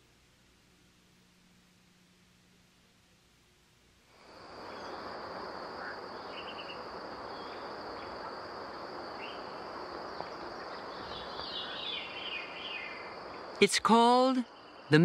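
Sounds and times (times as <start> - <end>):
soft steady hiss: 0.0 - 15.0
insects trilling: 4.1 - 15.0.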